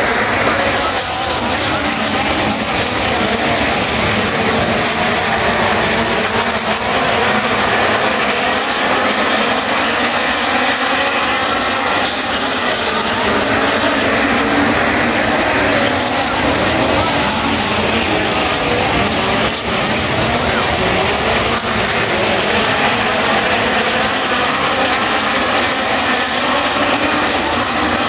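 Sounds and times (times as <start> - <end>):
race car engines droning: 0.0 - 28.0.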